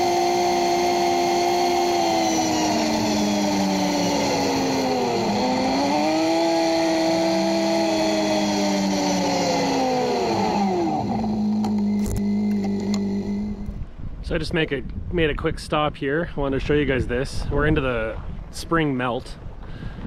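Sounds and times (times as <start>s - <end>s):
vehicle engine running: 0.0s - 13.8s.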